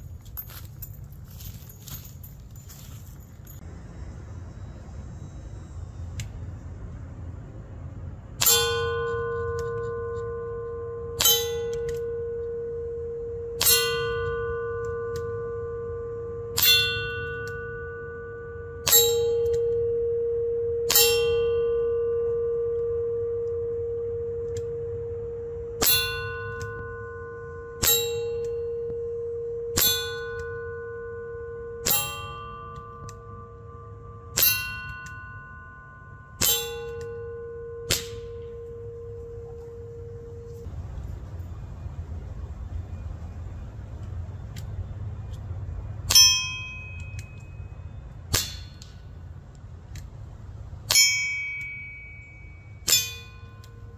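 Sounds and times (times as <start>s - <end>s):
steel target ringing: 8.1s - 40.7s, 46.0s - 49.3s, 50.7s - 53.9s.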